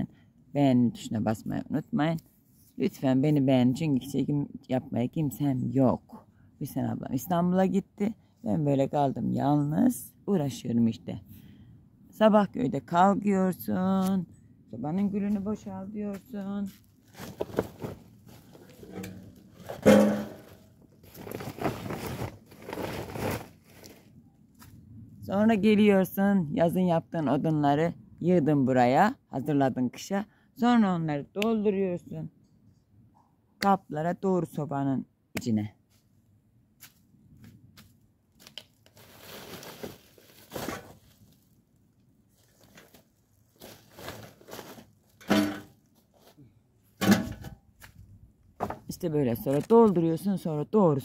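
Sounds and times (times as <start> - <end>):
plastic tarpaulins rustling: 16.2 - 24.2, 38.5 - 41.6, 42.2 - 46.4
plastic crinkling: 21.0 - 24.0, 38.6 - 41.4, 42.3 - 45.0.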